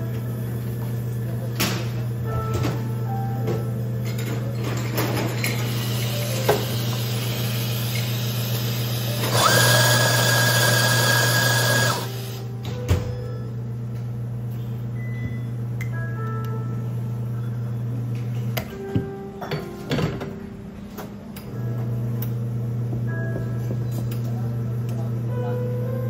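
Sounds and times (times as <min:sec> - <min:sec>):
low machine hum: 0:00.0 - 0:26.0
coffee grinder motor whirring: 0:06.8 - 0:12.4.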